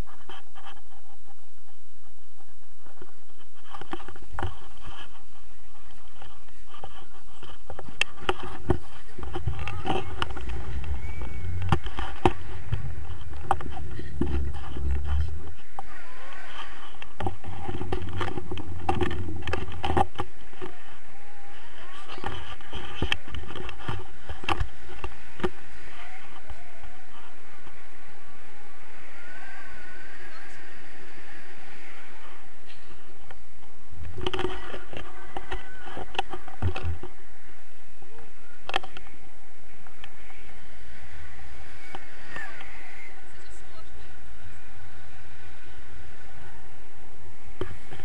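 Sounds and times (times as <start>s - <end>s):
wind rumbling over microphone: 0.0s - 48.0s.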